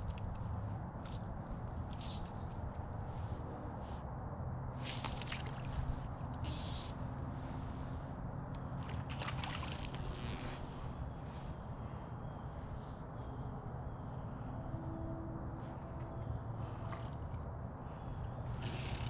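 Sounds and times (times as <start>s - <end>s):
water sloshing and splashing: 4.8s - 6.6s, 8.6s - 11.1s, 15.7s - 19.0s.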